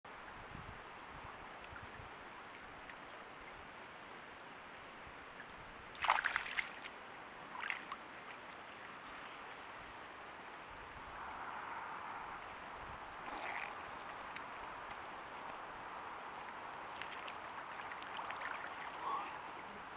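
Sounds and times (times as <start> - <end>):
faint steady hiss: 0.1 - 19.9
animals splashing in water: 5.9 - 9.4, 11.2 - 19.9.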